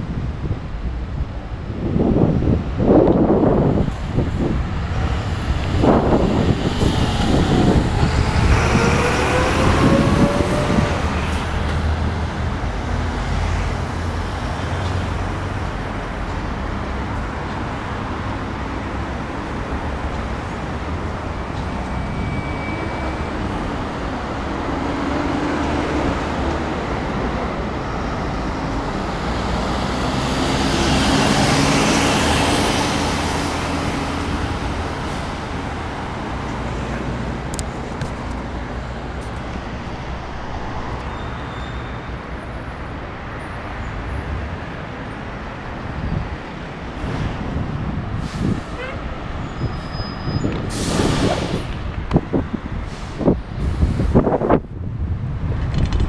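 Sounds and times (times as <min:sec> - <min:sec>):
steady traffic noise: 0:00.0 - 0:56.0
vehicle passing by: 0:04.4 - 0:14.2, 0:27.6 - 0:41.5.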